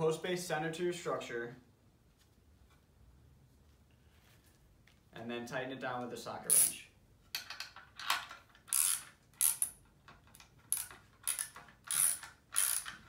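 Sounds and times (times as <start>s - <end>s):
ratchet wrench clicking: 6.5s - 6.8s, 7.4s - 13.0s.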